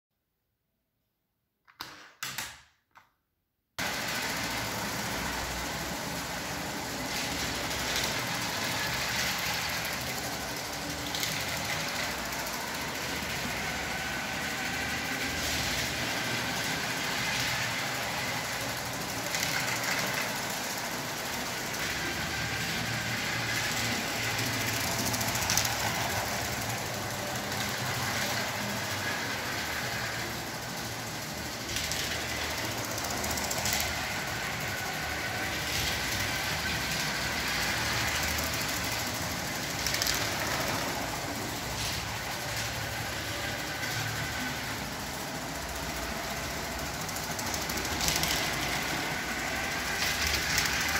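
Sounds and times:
toy train motor whirring: 3.8 - 50.9.

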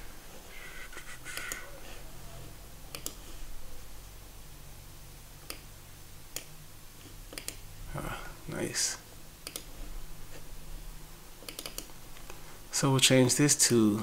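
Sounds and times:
low steady hum: 0.0 - 14.0
computer mouse clicking: 1.3 - 1.7, 2.9 - 3.3, 7.3 - 7.6, 9.4 - 9.8, 11.4 - 12.4.

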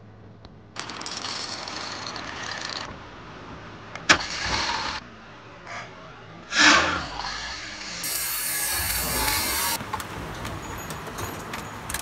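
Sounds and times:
alarm clock bells ringing: 8.0 - 12.0.

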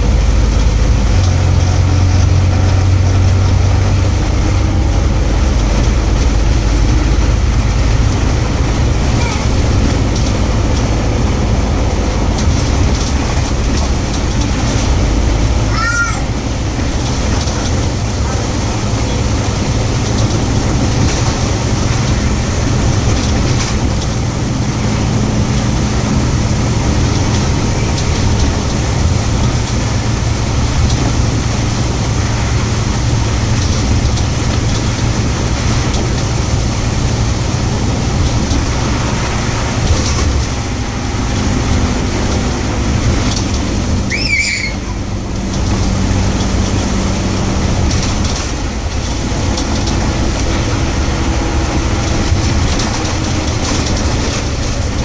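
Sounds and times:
bus diesel engine drone: 0.0 - 55.0
road noise: 0.0 - 55.0
brief high squeal: 44.1 - 45.0.

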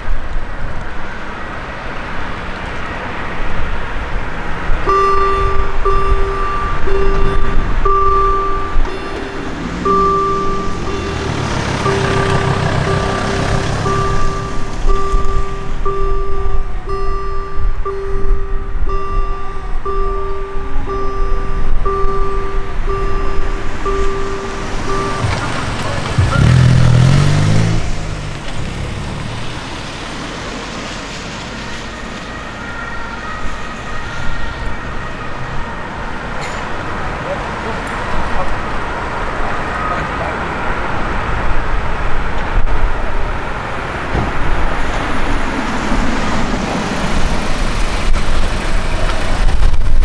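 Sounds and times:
two-pitch crossing warning tone: 4.9 - 27.9.

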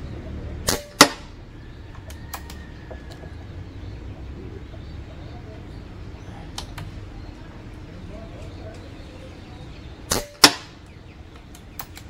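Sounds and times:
air rifle cracks: 0.7 - 1.3, 10.1 - 12.0
faint clicks: 1.9 - 3.4, 10.1 - 12.0.

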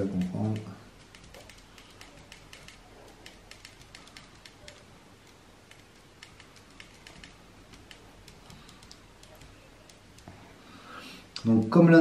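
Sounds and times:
fingertips clicking on printing plate: 0.0 - 10.3.

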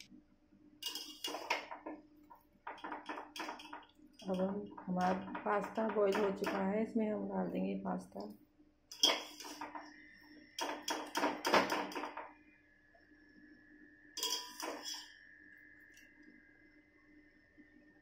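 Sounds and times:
metal bowl clanking against pan: 0.8 - 1.9, 2.7 - 6.7, 8.9 - 9.8, 10.6 - 12.3, 14.2 - 15.1.

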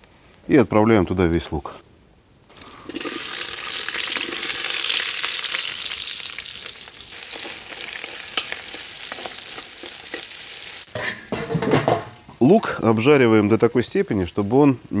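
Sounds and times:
onion sizzling in hot oil: 2.5 - 12.5.

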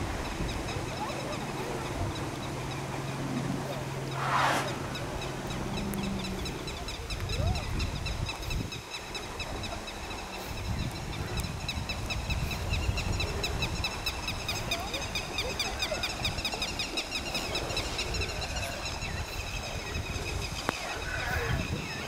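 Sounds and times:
uneven low rumble: 3.1 - 7.7.

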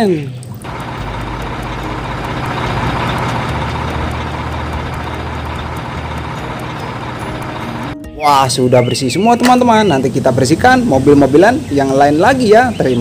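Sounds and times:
diesel engine running: 0.6 - 8.0.

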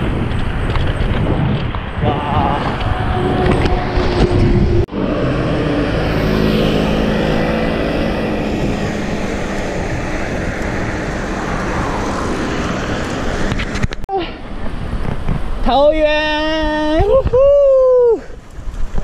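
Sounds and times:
road traffic: 0.0 - 16.0
passing vehicle engine hum: 2.0 - 13.9.

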